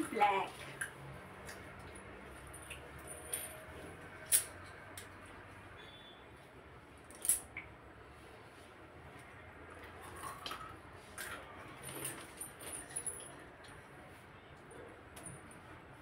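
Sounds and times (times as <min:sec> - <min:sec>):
person rustling and moving: 0:08.0 - 0:16.0.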